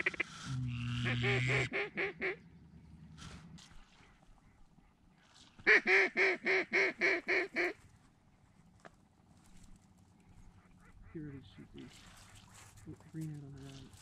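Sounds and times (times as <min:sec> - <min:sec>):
duck call quacks: 0:00.0 - 0:02.4, 0:05.7 - 0:07.8.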